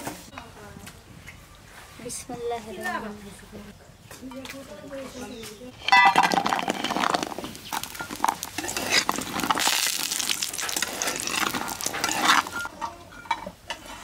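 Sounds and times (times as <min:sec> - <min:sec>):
spatula scraping pan: 0:05.8 - 0:14.0
food sizzling in oil: 0:07.4 - 0:12.7.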